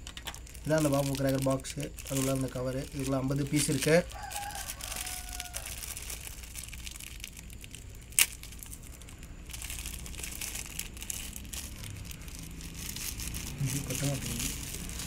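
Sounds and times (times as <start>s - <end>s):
wrapper crinkling: 0.0s - 15.0s
sharp crack: 5.9s - 11.4s.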